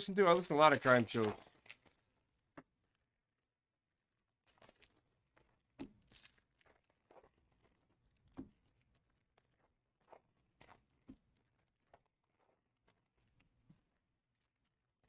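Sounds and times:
foil wrappers crinkling: 0.4s - 2.3s.

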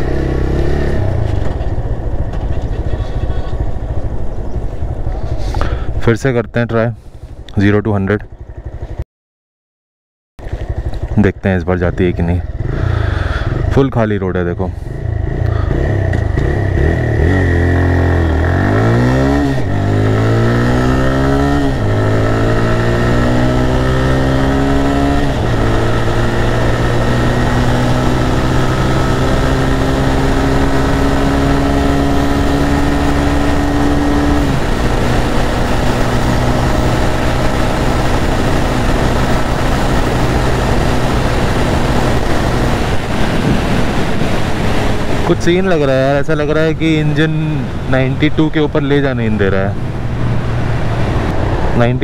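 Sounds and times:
motorcycle engine accelerating: 0.0s - 6.1s, 8.2s - 9.0s, 10.4s - 14.0s, 14.7s - 52.0s
wind noise: 30.4s - 48.1s.

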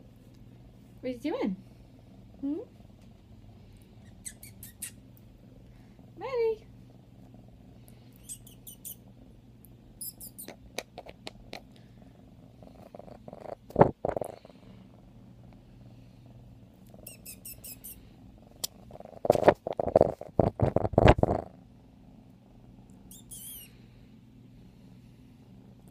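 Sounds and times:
kitten purring: 0.4s - 23.9s
rustling and knocks on microphone: 13.6s - 14.2s, 19.2s - 21.4s.

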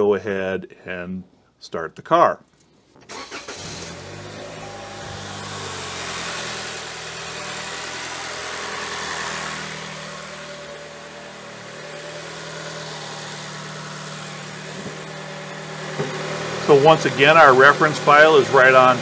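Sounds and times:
car engine idling: 3.1s - 19.0s.

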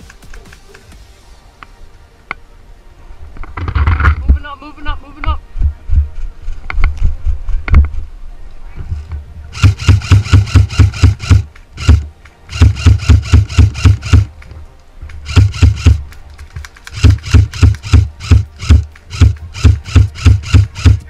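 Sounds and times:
airsoft gun firing bursts: 9.5s - 14.3s, 15.1s - 21.0s.

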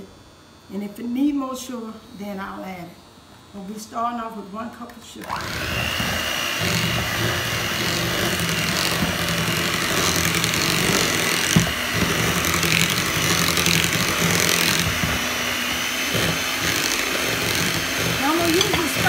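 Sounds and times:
electric hand mixer running: 5.2s - 19.0s.

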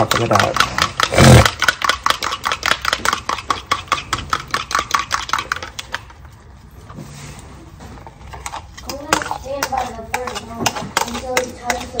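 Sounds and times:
fork beating eggs in bowl: 0.0s - 6.1s, 8.4s - 12.0s.

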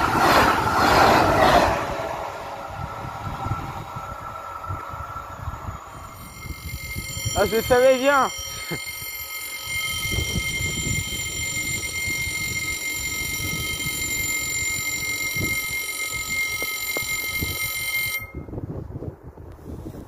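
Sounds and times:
low rumble: 0.0s - 7.4s
level crossing warning bell: 4.6s - 18.6s.

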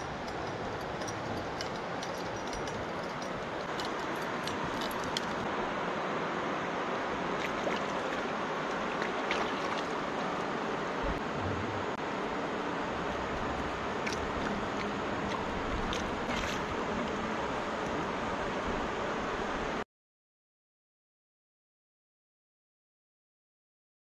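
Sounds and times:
river rushing over rocks: 0.0s - 19.2s
small water splashes: 7.3s - 10.5s, 14.0s - 16.8s.

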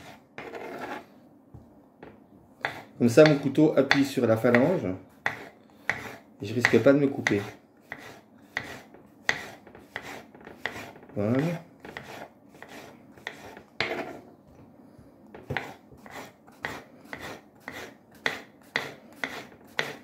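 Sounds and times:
knife slicing on wooden board: 5.3s - 11.0s, 11.9s - 14.2s, 15.4s - 20.0s.

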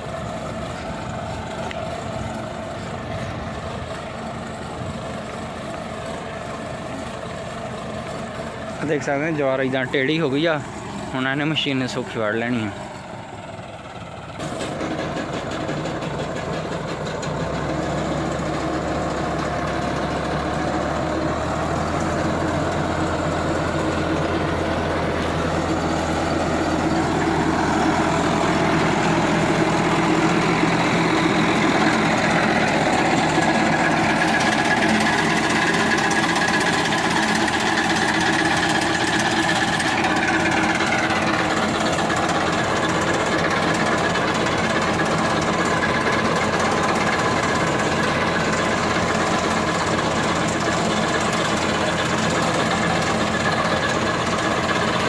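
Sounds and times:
fodder cutter cutting crops: 0.0s - 55.0s
tractor diesel engine running: 0.0s - 55.0s.

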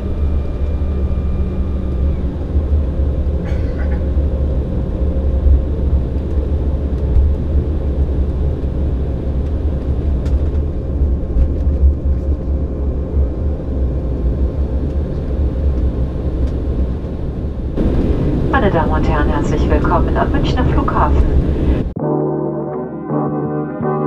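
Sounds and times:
airliner engines rumbling: 0.0s - 22.0s
steady cabin hum: 9.7s - 22.0s.

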